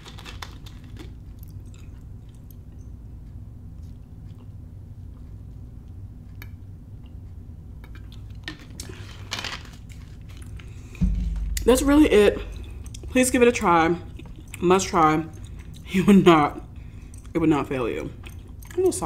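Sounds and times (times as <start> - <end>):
low hum: 10.5 - 14.5.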